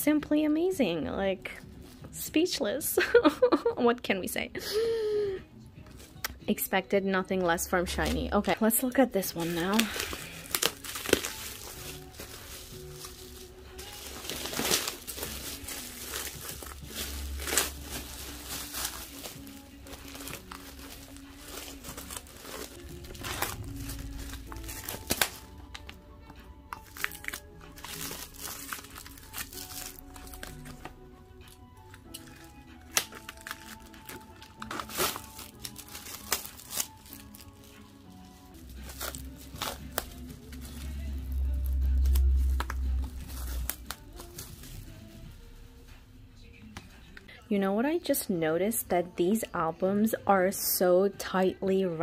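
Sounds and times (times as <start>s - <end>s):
soft background music: 0.0s - 52.0s
plastic shrink wrap crinkling: 7.9s - 26.0s, 26.7s - 45.2s
low rumble: 19.9s - 26.8s.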